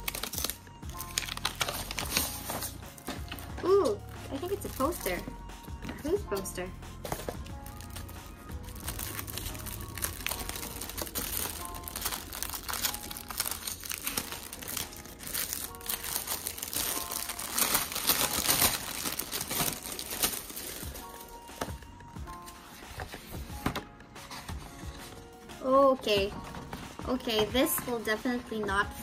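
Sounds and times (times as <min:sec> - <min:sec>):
packaging crinkling: 0:00.0 - 0:03.4, 0:07.1 - 0:21.8
quiet background music: 0:00.0 - 0:29.0.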